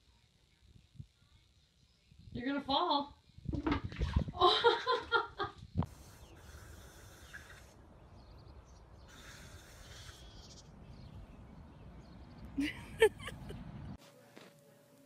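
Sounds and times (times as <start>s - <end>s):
faint gusts of hiss: 5.8s - 8.2s, 9.0s - 11.1s.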